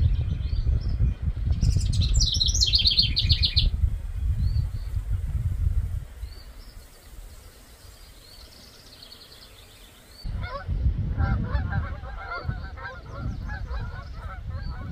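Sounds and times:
wind rumble on microphone: 0.0 - 9.2, 10.1 - 14.9
songbird chirps: 0.0 - 10.4
geese honking: 10.4 - 14.9.

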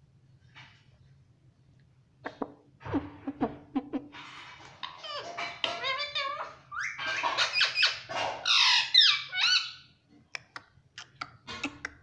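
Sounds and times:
parakeet squawking: 4.9 - 9.9.

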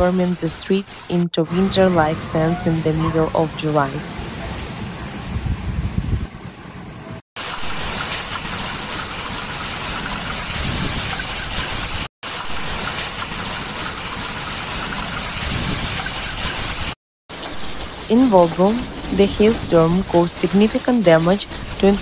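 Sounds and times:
hail and rain downpour: 7.4 - 22.0.

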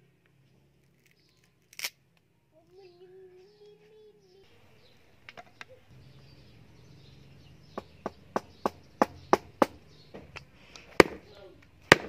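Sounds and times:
cleaver chopping on wooden block: 7.8 - 10.4, 11.0 - 11.3.

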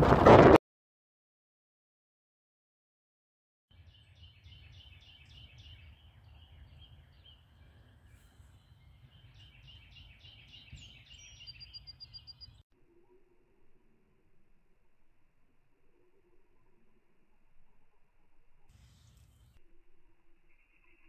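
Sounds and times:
wind rumble on microphone: 0.0 - 0.6
songbird chirping: 3.7 - 14.3.

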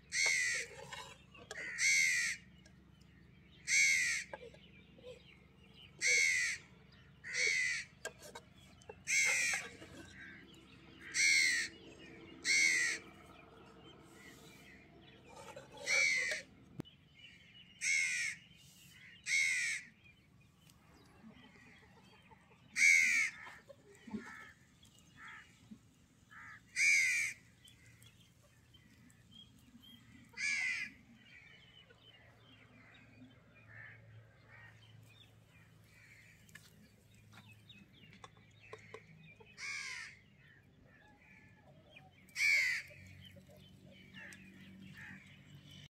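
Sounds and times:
crow cawing: 1.5 - 2.4, 6.0 - 6.6, 11.0 - 11.7, 12.4 - 13.0, 17.8 - 18.4, 19.2 - 19.9, 26.3 - 27.4, 30.4 - 30.9, 39.6 - 40.2, 42.3 - 42.9.

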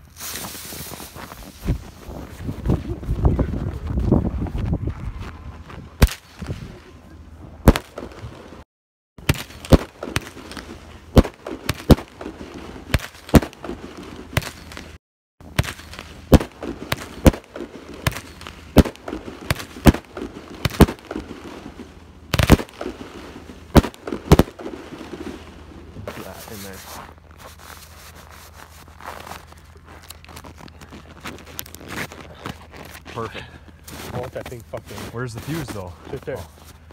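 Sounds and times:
firework bangs: 7.6 - 8.4, 9.2 - 26.6.

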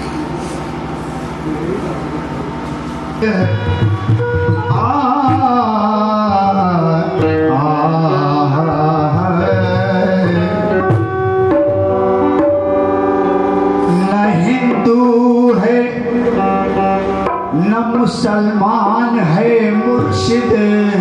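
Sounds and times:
harmonium held notes: 0.0 - 21.0
man singing: 3.2 - 11.1, 13.8 - 16.9, 17.5 - 21.0
hand drum: 3.4 - 15.0.

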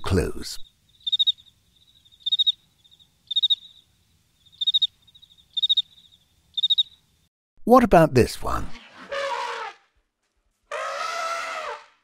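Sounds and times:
cricket chirping: 0.6 - 7.3.

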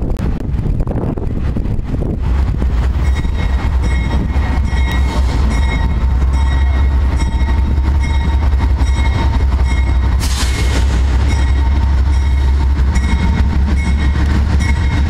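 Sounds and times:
train engine rumble: 0.0 - 15.0
high ringing tone: 3.0 - 10.1, 11.2 - 15.0.

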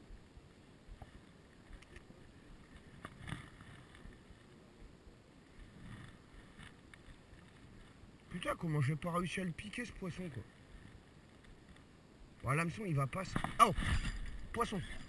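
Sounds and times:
rustle of handling: 10.1 - 12.0
faint wind on microphone: 13.1 - 15.0.

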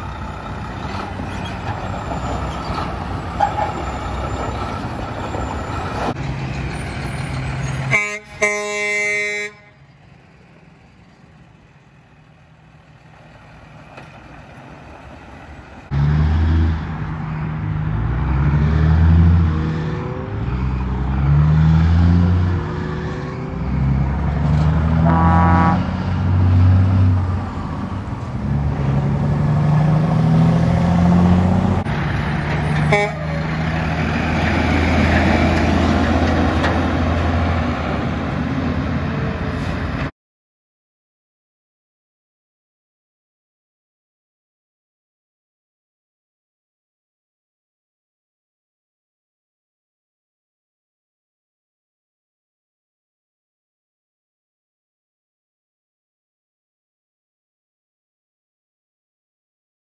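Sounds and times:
diesel trucks accelerating: 0.0 - 40.1
road noise: 0.0 - 40.1
air horn blast: 7.9 - 9.9, 25.0 - 25.9, 32.8 - 33.5.

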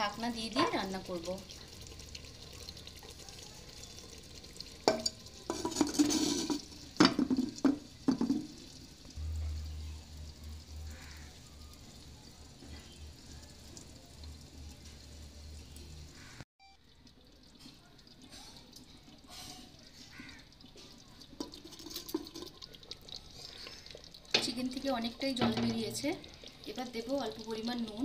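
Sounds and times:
light sizzle: 0.0 - 28.0
spoon scraping in pot: 5.0 - 6.7
faint low hum: 9.2 - 16.1.

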